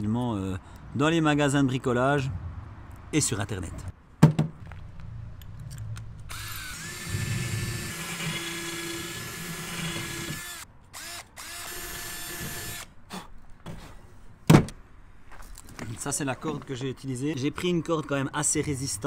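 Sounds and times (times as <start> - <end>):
loud thump: 4.2 - 4.6
cordless drill whining: 6.3 - 12.9.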